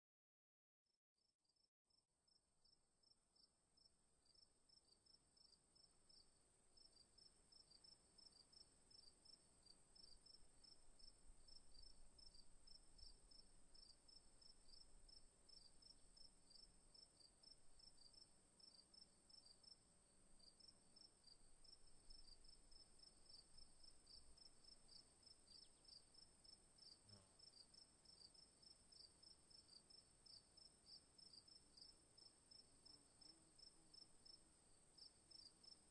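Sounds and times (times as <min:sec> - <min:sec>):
crickets chirping: 0:06.8 - 0:19.8, 0:20.4 - 0:35.9.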